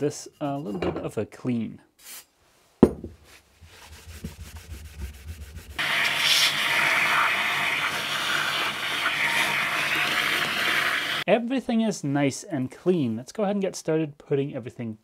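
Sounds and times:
rag wiping metal plate: 3.6s - 10.0s.

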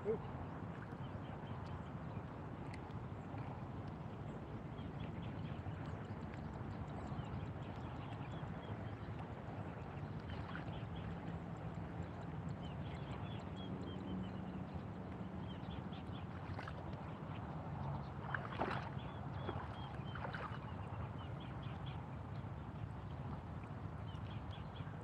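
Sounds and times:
water sloshing: 18.1s - 20.7s.

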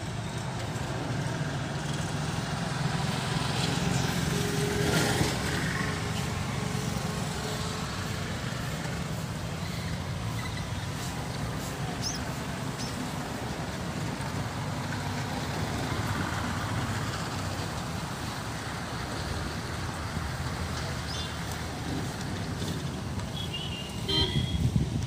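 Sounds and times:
road traffic rumble: 0.0s - 25.0s.

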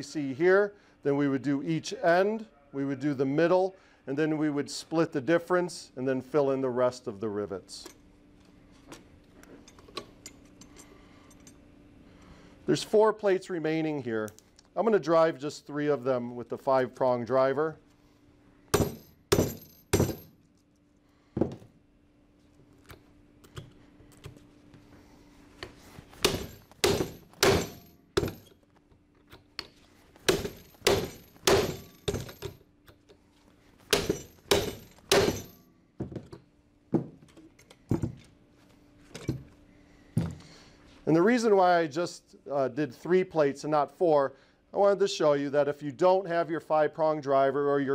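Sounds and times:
sledge hammer striking metal: 18.8s - 20.3s, 26.2s - 28.5s, 30.3s - 32.5s, 33.9s - 35.6s.

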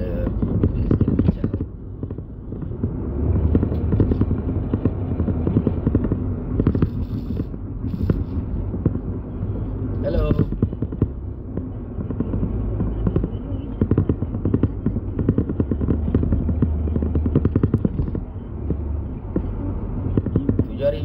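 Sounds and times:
car cabin rumble: 0.0s - 21.0s
crackling and clicking: 9.9s - 21.0s.

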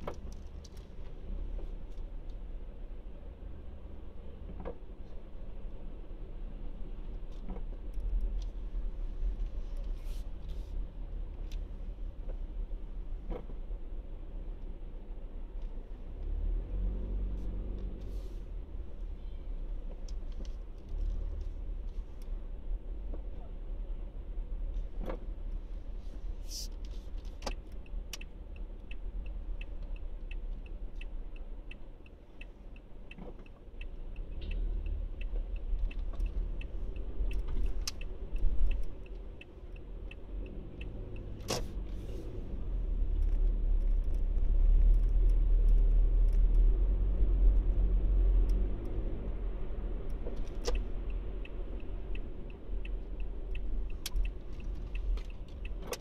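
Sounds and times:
car engine and road rumble: 0.0s - 56.0s
turn signal indicator ticking: 26.7s - 56.0s.

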